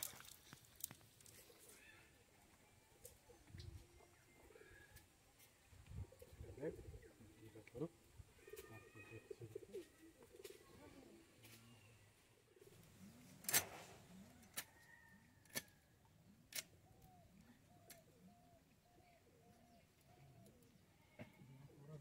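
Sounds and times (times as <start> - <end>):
pigeon cooing: 5.9 - 7.6, 8.4 - 13.4, 16.8 - 22.0.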